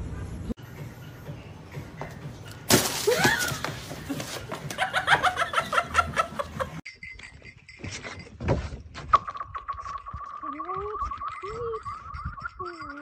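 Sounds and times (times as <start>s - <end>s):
loud laughter: 4.7s - 6.8s.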